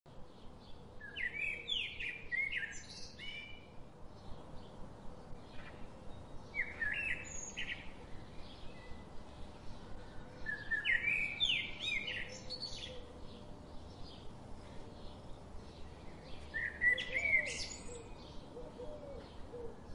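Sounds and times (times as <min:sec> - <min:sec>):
songbird singing: 0:00.1 - 0:19.9.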